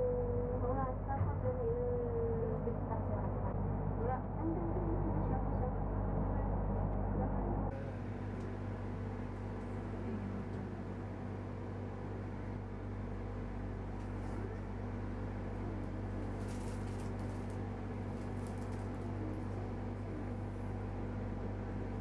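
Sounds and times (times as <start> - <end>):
low mechanical hum: 0.0 - 22.0.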